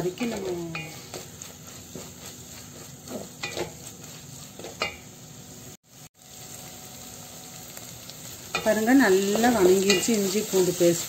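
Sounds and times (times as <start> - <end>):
wooden spatula scraping pot: 0.0 - 5.0
masala sizzling in oil: 0.0 - 11.0.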